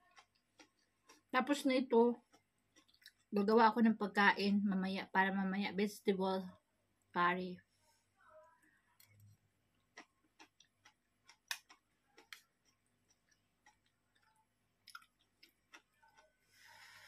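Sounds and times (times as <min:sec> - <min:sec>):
chewing: 0:00.0 - 0:01.3, 0:02.2 - 0:03.3, 0:09.0 - 0:16.4.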